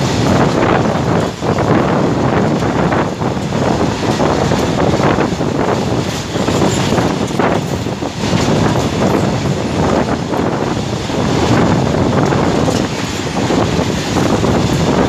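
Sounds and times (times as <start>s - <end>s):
freight train passing: 0.0s - 15.0s
train wheel and rail noise: 0.0s - 15.0s
wind buffeting microphone: 0.0s - 15.0s.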